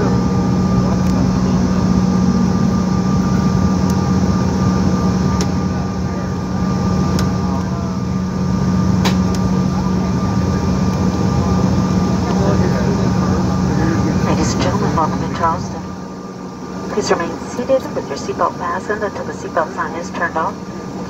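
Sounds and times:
jet engine hum: 0.0 - 21.0.

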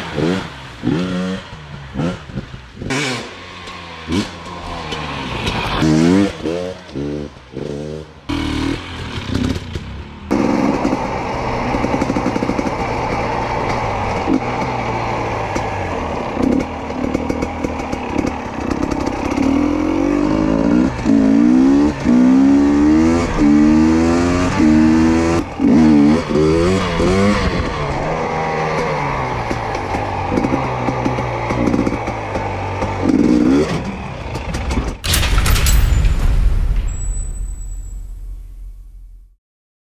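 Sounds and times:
dirt bike engine revving: 0.0 - 34.1
sudden burst: 35.1 - 39.4.

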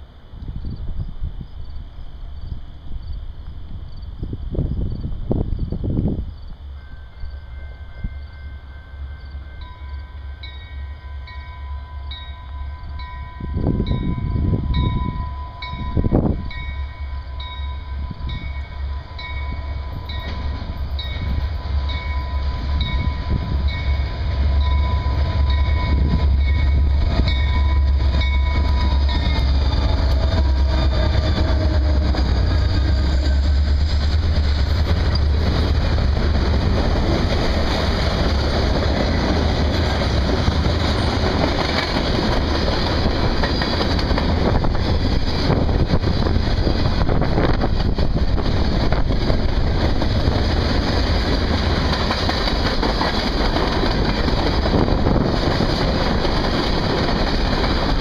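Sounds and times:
locomotive engine rumble: 0.2 - 58.0
freight cars rattling on rails: 13.4 - 58.0.

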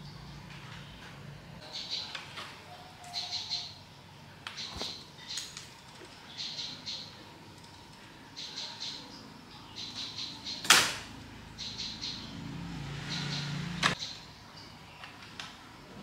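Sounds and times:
small bird chirping: 1.6 - 10.7, 11.5 - 15.2.

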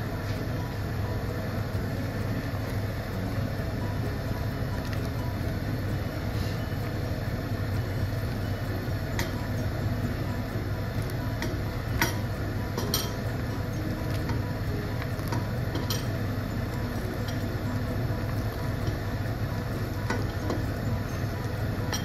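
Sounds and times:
soup boiling in a pot: 0.0 - 22.0
ladle clinking against pot: 11.4 - 13.3, 15.2 - 16.2.

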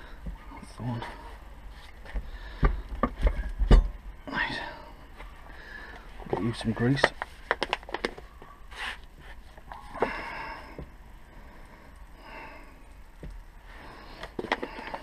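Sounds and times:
man breathing and sniffing: 8.7 - 15.0.

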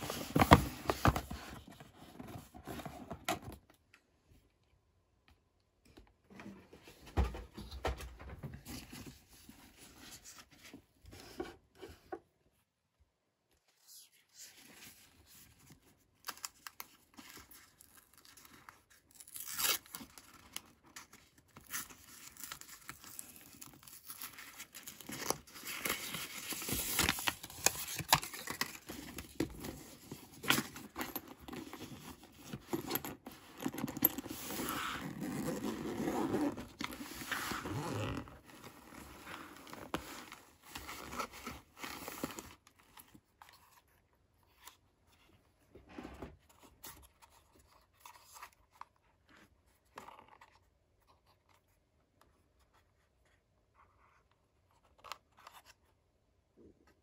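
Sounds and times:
fabric bag rustling and scraping: 30.0 - 41.8.

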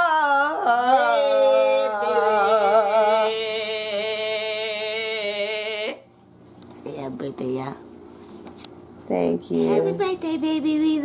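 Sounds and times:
woman singing long held note: 0.0 - 6.0.

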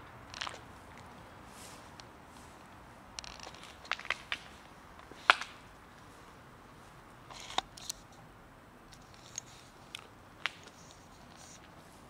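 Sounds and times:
crackling: 0.0 - 1.3, 1.9 - 6.1, 8.8 - 11.9.

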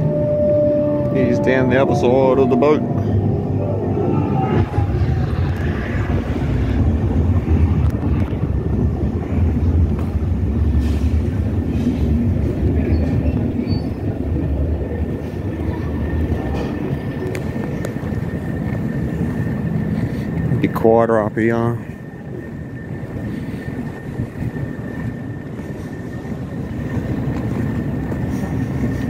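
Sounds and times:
loud low rumble: 0.0 - 20.6.

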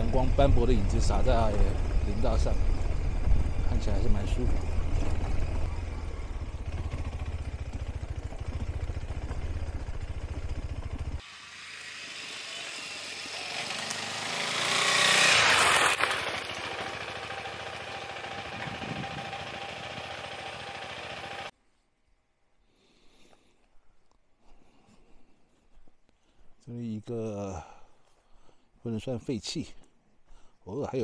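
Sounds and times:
motorcycle engine running: 0.0 - 21.5
motorcycle riding past: 0.2 - 21.5.

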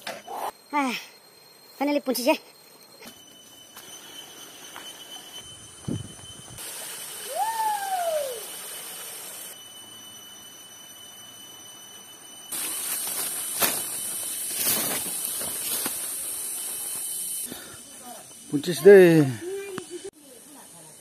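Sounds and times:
high insect drone: 0.0 - 21.0
rising and falling bird call: 7.3 - 8.5.

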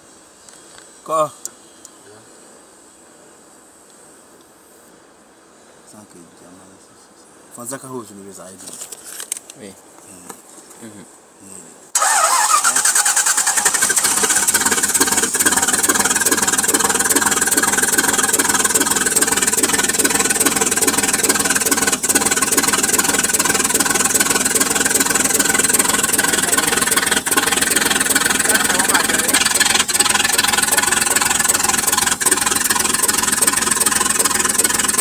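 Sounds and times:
car engine starting and running: 12.0 - 35.0.

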